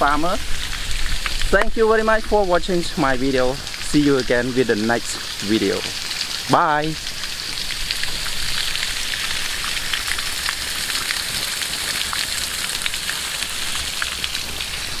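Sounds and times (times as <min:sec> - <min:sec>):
water gushing from pipe: 0:00.0 - 0:15.0
water splashing on mud: 0:00.0 - 0:15.0.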